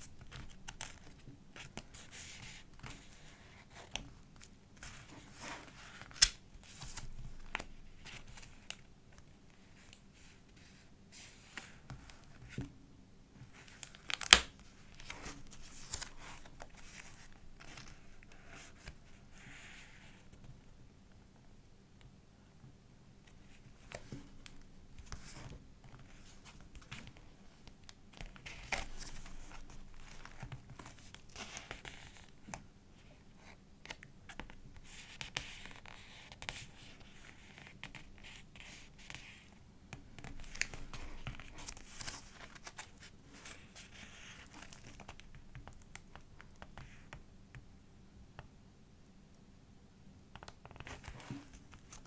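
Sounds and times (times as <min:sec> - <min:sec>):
paper pages turning and rustling: 0:00.1 - 0:12.7, 0:13.5 - 0:19.0, 0:23.5 - 0:32.3, 0:40.2 - 0:47.0, 0:50.4 - 0:52.0.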